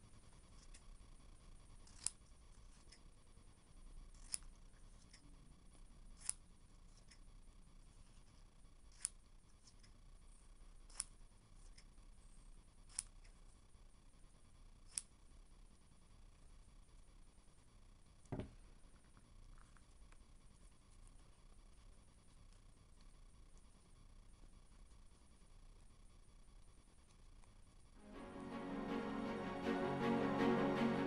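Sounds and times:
scissors snipping fabric: 4.1s - 5.2s, 8.9s - 9.9s, 10.9s - 11.9s.

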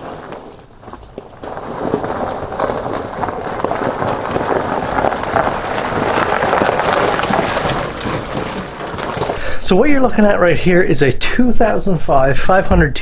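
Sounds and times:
footsteps: 0.0s - 9.7s
tires crunching over gravel: 0.0s - 10.3s.

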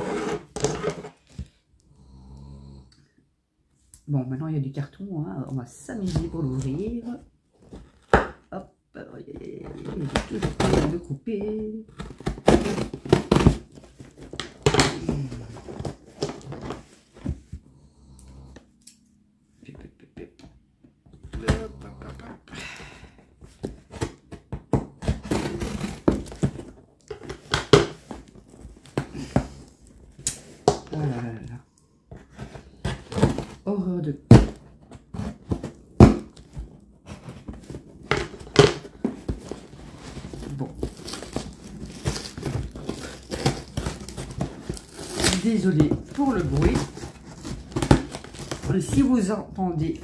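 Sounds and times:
cardboard rustling: 9.5s - 17.6s, 21.1s - 50.0s
scissors cutting packing tape: 40.9s - 45.4s.

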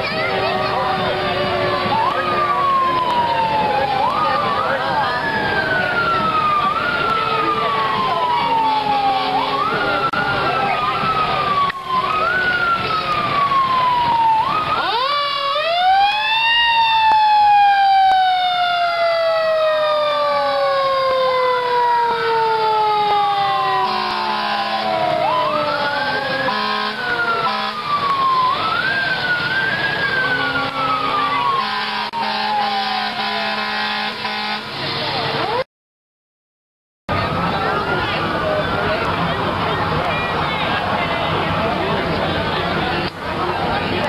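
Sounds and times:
fire engine sirens wailing: 0.0s - 35.7s, 37.1s - 44.0s.

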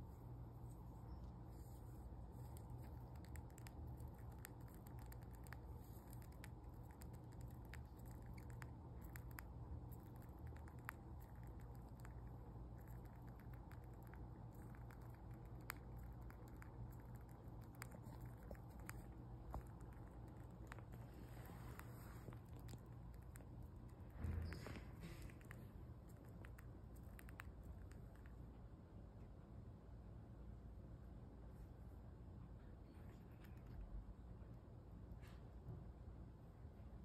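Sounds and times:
low steady hum: 0.0s - 37.0s
hamster nibbling clicks: 1.0s - 28.6s.

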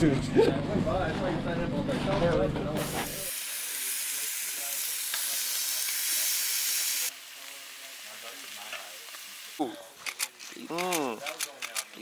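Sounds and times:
steaks sizzling: 3.1s - 9.6s.

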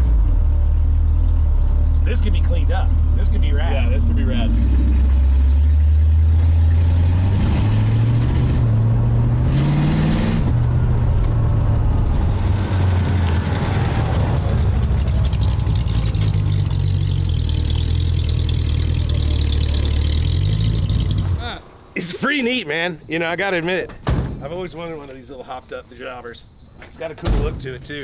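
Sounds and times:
car engine accelerating: 0.0s - 22.0s.

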